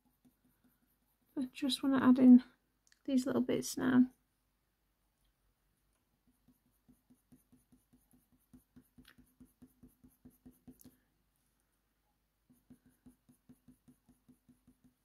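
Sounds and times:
pencil strokes on paper: 0.0 - 2.1, 6.2 - 11.0, 12.4 - 15.0.

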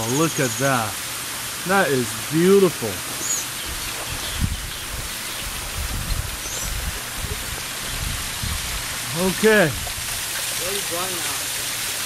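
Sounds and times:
small waterfall splashing into pool: 0.0 - 12.0
bird chirps: 6.4 - 6.8.

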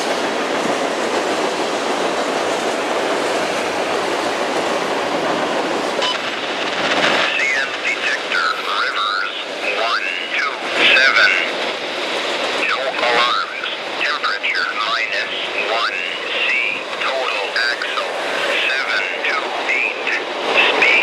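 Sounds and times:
train rolling across steel bridge: 0.0 - 21.0
person speaking: 7.2 - 11.5, 12.6 - 21.0.

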